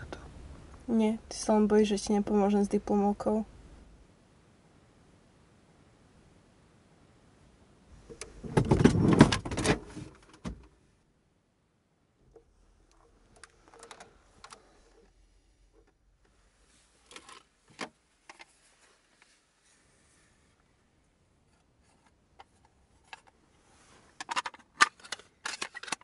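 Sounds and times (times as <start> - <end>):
people rustling inside a car: 8.0 - 10.8, 12.3 - 25.6.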